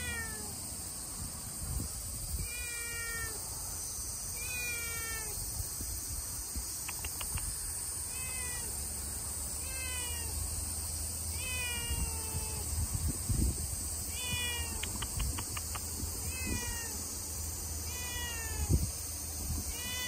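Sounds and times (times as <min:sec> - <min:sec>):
cat meowing: 0:00.0 - 0:00.6, 0:02.4 - 0:03.4, 0:04.3 - 0:05.4, 0:08.1 - 0:08.7, 0:09.6 - 0:10.3, 0:11.3 - 0:12.7, 0:14.1 - 0:15.2, 0:16.2 - 0:17.0, 0:17.8 - 0:18.8, 0:19.7 - 0:20.0.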